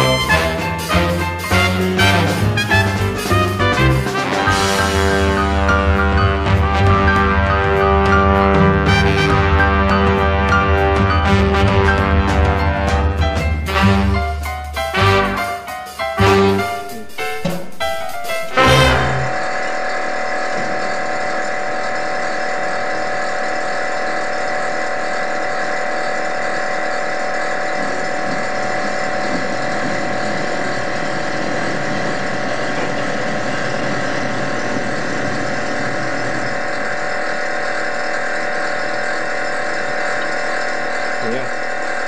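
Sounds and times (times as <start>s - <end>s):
small machine motor humming: 18.5s - 42.0s.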